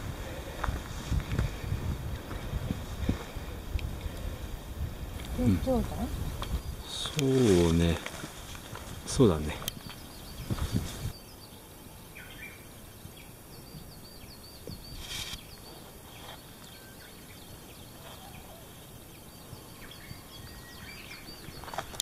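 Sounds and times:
bird chirping: 5.3 - 8.0, 9.1 - 22.0
brief rustle: 14.9 - 15.5.

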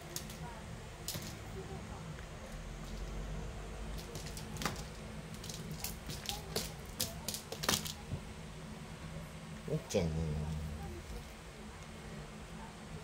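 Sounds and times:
cat claws scrabbling on hard floor: 4.0 - 8.0.

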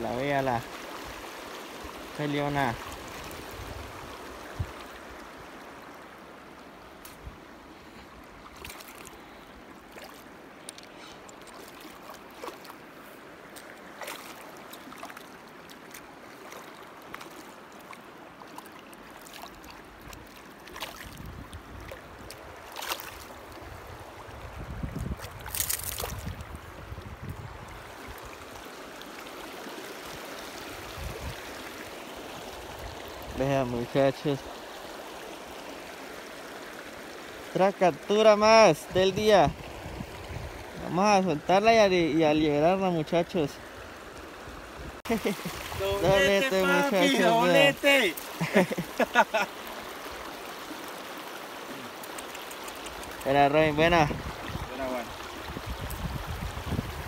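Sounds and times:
river running over stones: 0.0 - 57.0.

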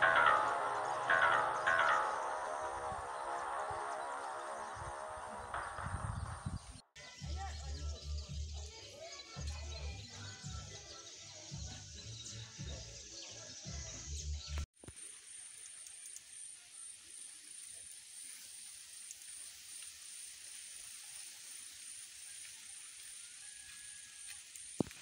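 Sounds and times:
insect chirping: 0.0 - 6.8, 14.8 - 25.0
music with heavy bass: 0.0 - 8.6.

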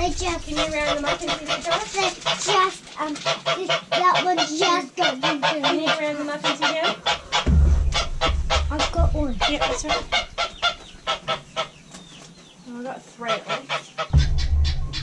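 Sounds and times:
geese honking: 0.0 - 11.9, 13.2 - 15.0.

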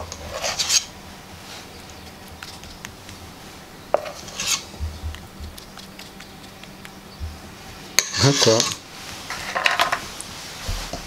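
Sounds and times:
metal spoon scraping metal bowl: 4.0 - 4.8, 8.0 - 9.9.

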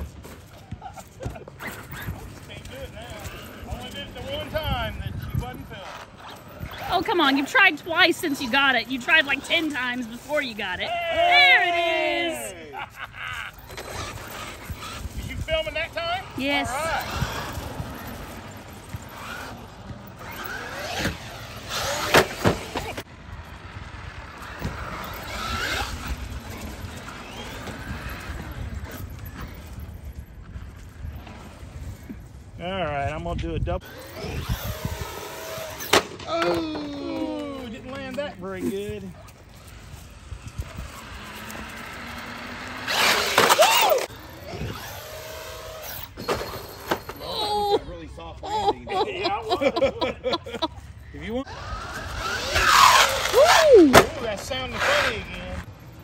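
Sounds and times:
electric motor whining: 13.6 - 23.1, 33.8 - 36.0, 39.4 - 46.2, 51.4 - 55.7.

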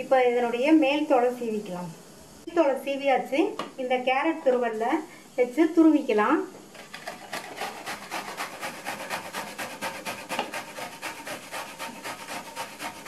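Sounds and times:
mango rasping on metal grater: 6.9 - 13.0.

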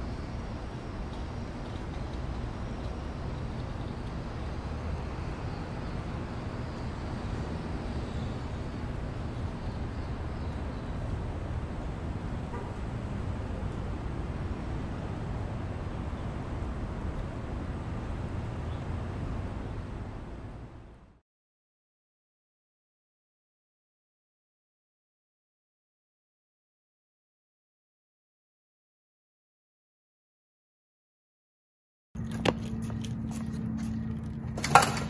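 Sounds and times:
low rumble of urban ambience: 0.0 - 21.2, 32.2 - 35.0.

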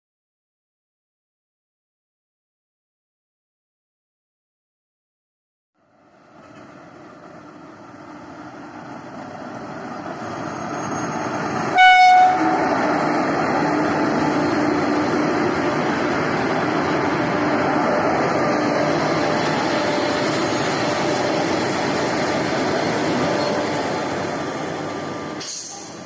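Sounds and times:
train rumble and clatter: 6.1 - 26.0
train horn blast: 11.7 - 12.7.

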